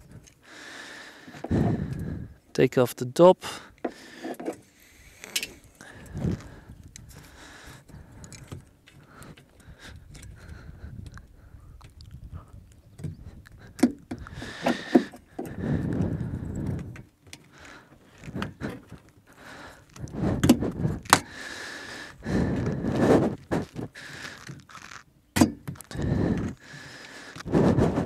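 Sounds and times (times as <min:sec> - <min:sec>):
tire lever clicking on rim: 0:12.8 - 0:18.9, 0:19.9 - 0:21.4, 0:24.3 - 0:26.6.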